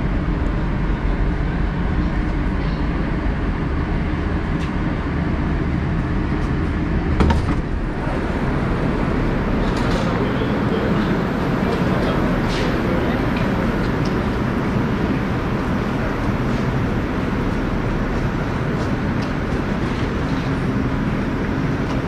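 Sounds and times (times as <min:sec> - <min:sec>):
train rumbling: 0:00.0 - 0:22.0
sliding doors knocking open: 0:07.0 - 0:08.0.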